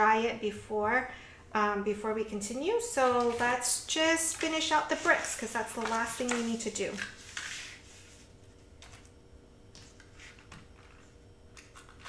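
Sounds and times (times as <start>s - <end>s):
cardstock rustling and sliding: 4.3s - 8.2s.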